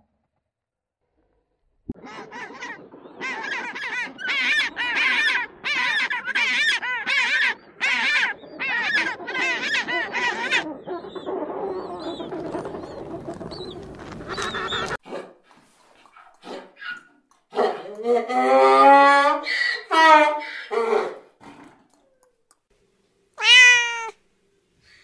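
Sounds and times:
penguin braying: 2.0s - 12.8s, 23.4s - 24.1s.

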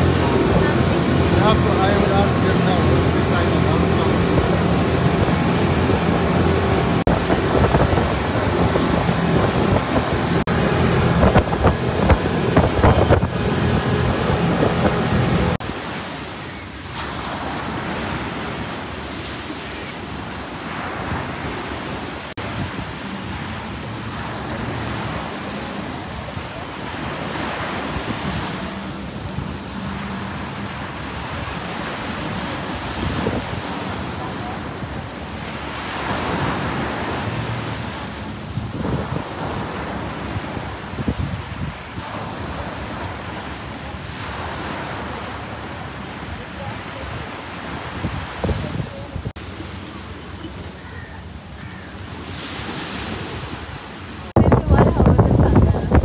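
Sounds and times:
wind buffeting microphone: 0.0s - 15.8s, 31.2s - 35.4s, 36.1s - 43.2s, 47.9s - 49.4s, 53.6s - 56.0s
waves breaking on shore: 0.0s - 56.0s.

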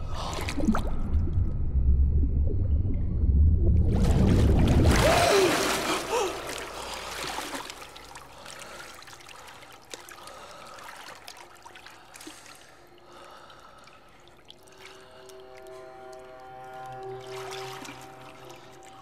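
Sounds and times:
water splashing and churning: 0.0s - 1.3s, 3.8s - 19.0s
water trickling and dripping: 4.0s - 19.0s.

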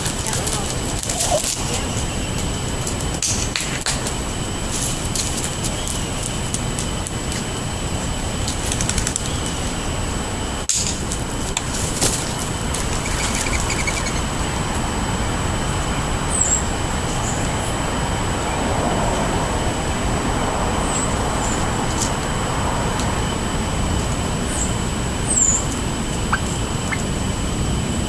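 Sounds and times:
small birds chirping: 0.0s - 2.5s, 12.8s - 14.3s, 24.5s - 27.1s
turkeys pecking on asphalt: 0.0s - 7.5s
background rumble: 0.0s - 9.3s.

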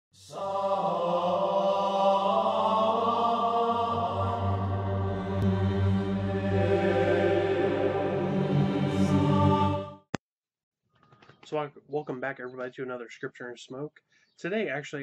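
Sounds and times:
chanted voices singing held notes: 0.2s - 10.0s.

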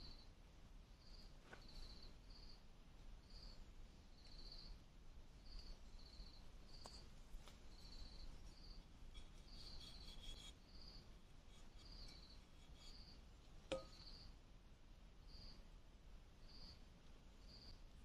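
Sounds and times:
insect chirping: 1.0s - 2.6s, 3.2s - 4.8s, 5.4s - 7.1s, 7.7s - 14.4s, 15.2s - 15.6s, 16.4s - 17.8s.

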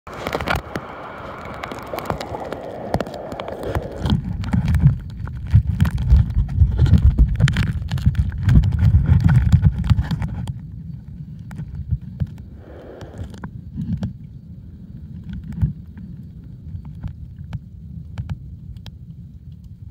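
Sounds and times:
splashy hiss of seawater: 0.1s - 4.3s, 12.5s - 13.4s
underwater clicks and crackles: 0.1s - 14.3s, 15.0s - 19.9s
underwater rumble of moving water: 0.1s - 19.9s.

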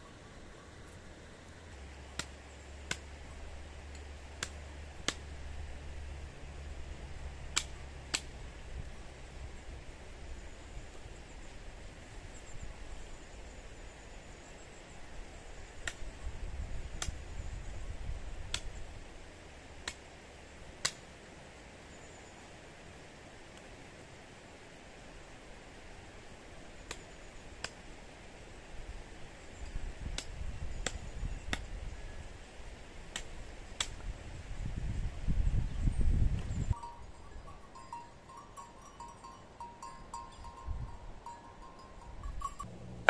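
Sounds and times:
hatchet chopping a branch: 7.5s - 8.3s, 33.1s - 34.1s.

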